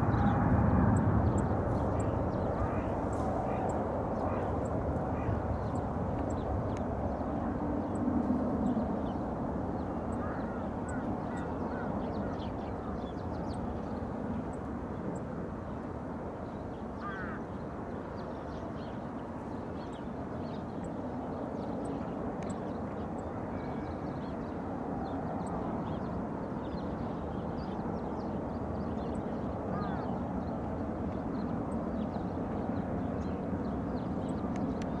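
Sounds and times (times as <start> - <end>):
distant jet engines rumbling: 0.0 - 35.0
faint bird calls: 1.3 - 5.8, 10.1 - 13.1, 17.0 - 17.4, 29.7 - 30.1.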